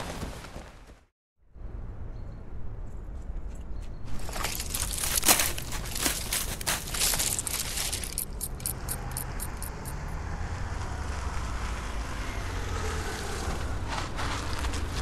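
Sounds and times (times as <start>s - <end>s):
footsteps crunching in dry leaves: 4.0s - 8.2s
cars driving along road: 5.6s - 15.0s.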